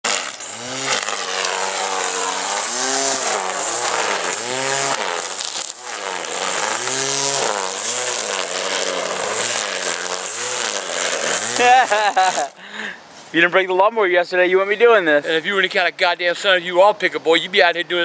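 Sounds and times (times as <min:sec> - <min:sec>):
electric string trimmer cutting grass: 0:00.0 - 0:12.6.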